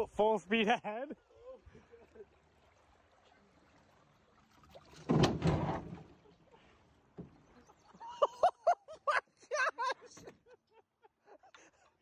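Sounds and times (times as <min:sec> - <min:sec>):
rushing water: 0:00.0 - 0:08.6.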